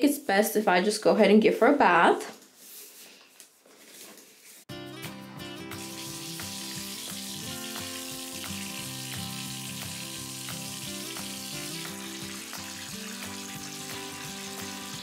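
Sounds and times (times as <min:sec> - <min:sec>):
background music: 0:04.7 - 0:15.0
water running into a tub: 0:05.7 - 0:15.0.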